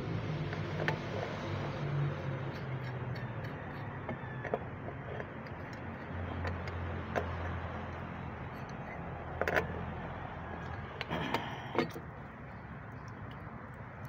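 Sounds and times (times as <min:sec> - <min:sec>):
wrench clicking on pipe fitting: 0:02.5 - 0:09.7.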